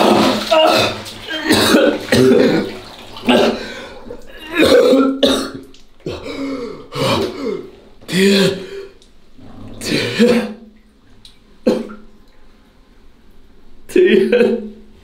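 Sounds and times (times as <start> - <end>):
person coughing: 1.4 - 2.7, 3.3 - 3.7, 4.4 - 8.8, 9.8 - 10.6, 11.7 - 12.0, 13.9 - 14.8.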